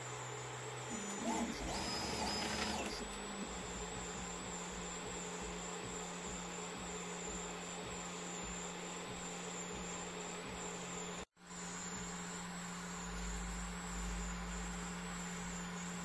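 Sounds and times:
constant low hum: 0:00.0 - 0:16.0
printer fans whirring: 0:00.0 - 0:16.0.

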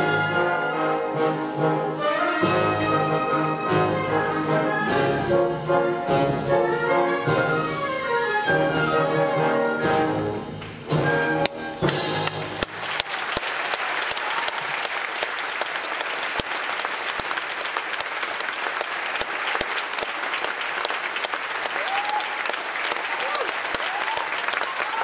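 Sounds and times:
orchestra playing closing chords: 0:00.0 - 0:12.8
audience applause: 0:11.8 - 0:25.0.

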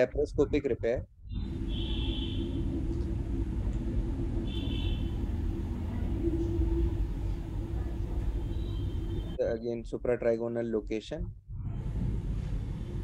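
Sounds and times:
constant hum: 0:00.4 - 0:09.4
low rumble: 0:02.4 - 0:09.4.

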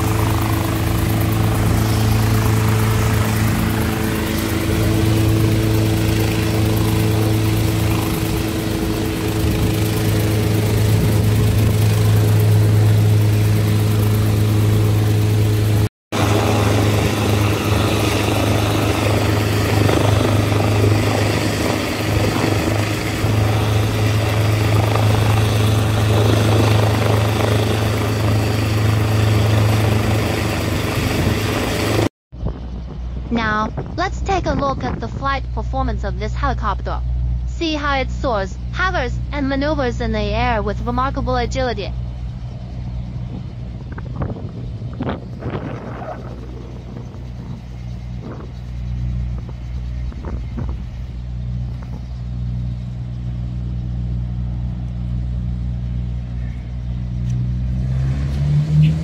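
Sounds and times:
helicopter engine and rotor drone: 0:00.0 - 0:57.8.

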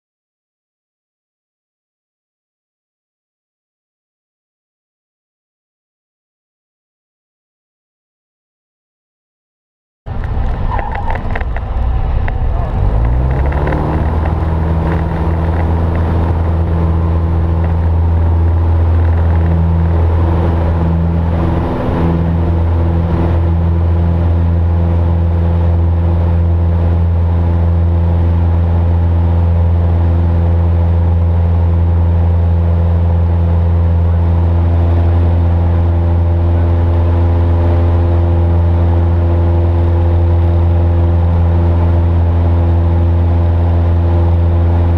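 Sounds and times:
light aircraft engine and propeller: 0:10.1 - 0:44.9.

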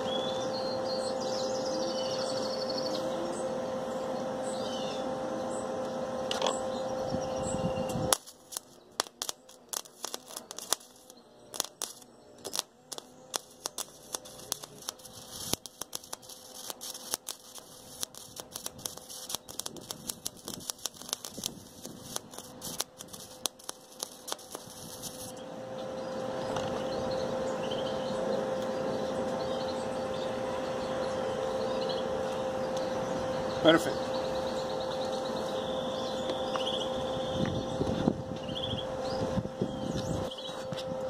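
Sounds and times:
welding arc crackling and popping: 0:07.4 - 0:27.2, 0:31.6 - 0:38.7.

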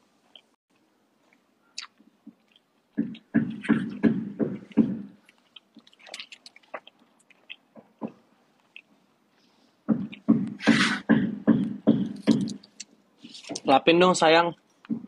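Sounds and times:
soft mouth clicks and smacks: 0:01.2 - 0:03.8, 0:04.6 - 0:09.0
man making rhythmic mouth sounds: 0:01.8 - 0:08.9, 0:09.9 - 0:12.9.

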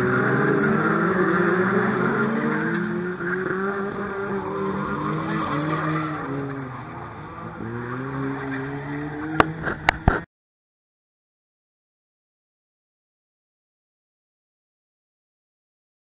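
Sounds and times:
race car engines: 0:00.0 - 0:10.3.

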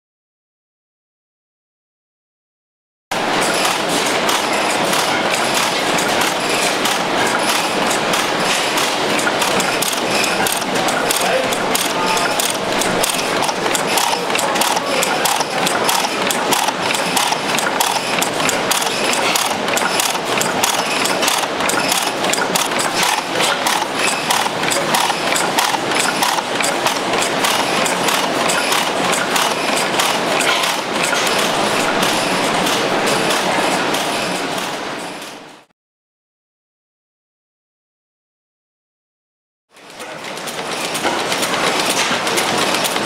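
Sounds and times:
fast clattering clicks: 0:03.6 - 0:32.8
stationary gas engine running: 0:06.0 - 0:32.8.

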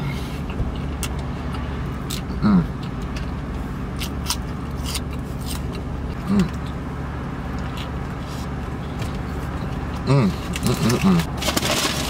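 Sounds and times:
car engine idling: 0:00.0 - 0:12.0
person chewing food: 0:00.4 - 0:06.8, 0:07.5 - 0:08.6
person humming: 0:02.3 - 0:02.8, 0:06.2 - 0:06.6, 0:10.0 - 0:11.3
crisp crackles of wrapper and bun: 0:10.6 - 0:12.0.

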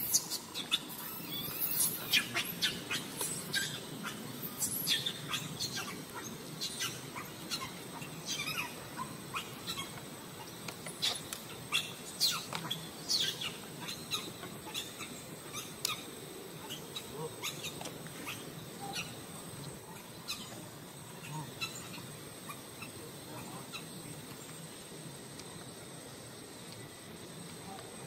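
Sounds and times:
high-pitched animal chirps: 0:00.0 - 0:05.9.

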